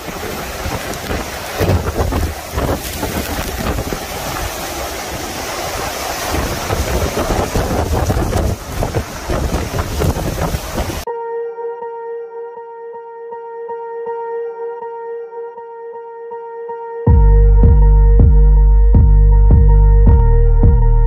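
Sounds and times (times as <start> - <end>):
heavy rain: 0.0 - 11.1
strong storm wind: 0.0 - 11.1
wind gusting against microphone: 0.0 - 11.1
ambient music tones: 11.0 - 21.0.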